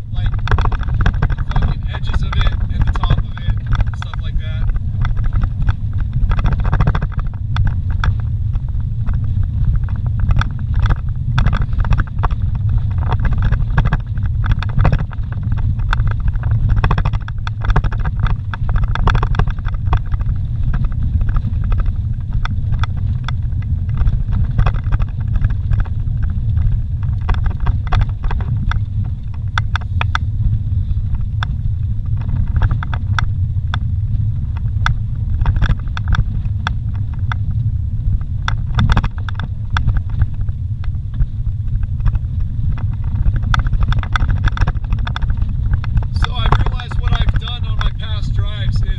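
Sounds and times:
rattles and knocks: 0.0s - 30.3s, 41.1s - 48.9s
engine and tyres rumbling: 0.0s - 48.9s.

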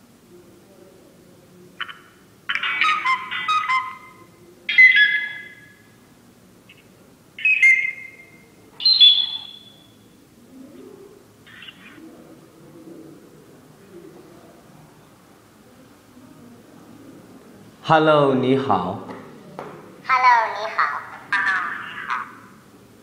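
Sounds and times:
high whistle-like chirping: 7.4s - 10.0s.

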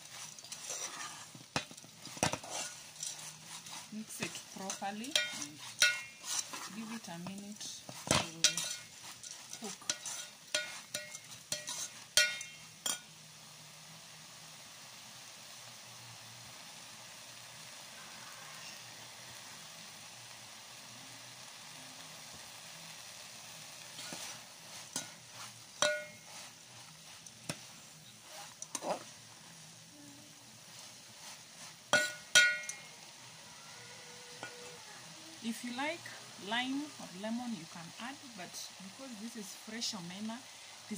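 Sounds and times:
metal spoon scraping a pot: 0.0s - 13.1s, 23.9s - 29.3s, 30.7s - 33.1s
fish sizzling in oil: 0.0s - 40.9s.

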